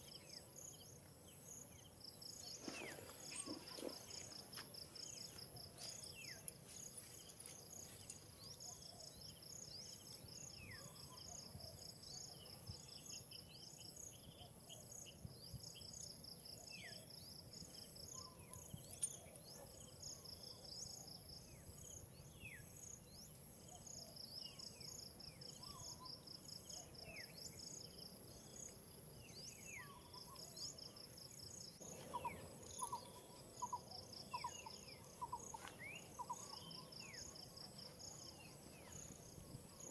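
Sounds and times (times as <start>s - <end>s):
bird chirps: 1.6s - 14.5s, 25.4s - 39.9s
insect chorus buzzing: 21.8s - 39.9s.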